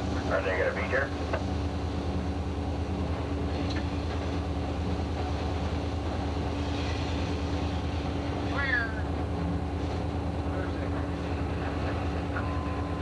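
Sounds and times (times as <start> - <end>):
constant hum: 0.0 - 13.0
locomotive engine drone: 0.0 - 13.0.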